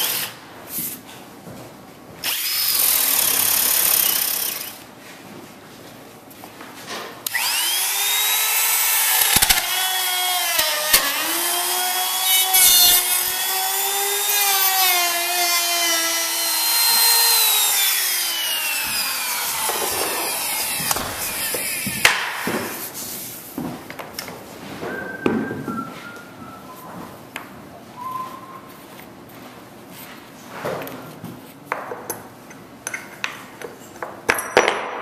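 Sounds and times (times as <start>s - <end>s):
router whining and cutting wood: 7.3s - 22.2s.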